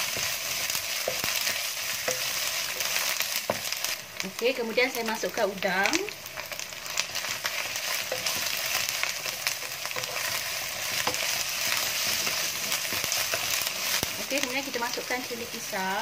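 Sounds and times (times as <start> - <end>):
shrimp sizzling in hot oil: 0.0 - 16.0
wooden spatula knocking pan: 1.0 - 3.8.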